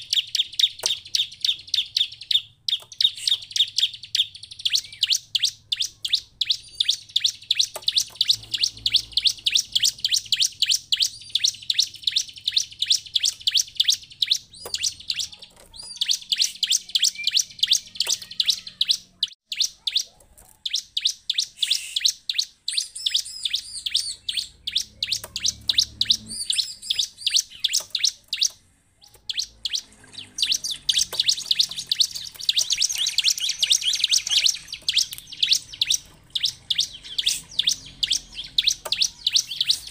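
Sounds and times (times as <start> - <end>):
bird high sharp chirps: 0.0 - 39.9.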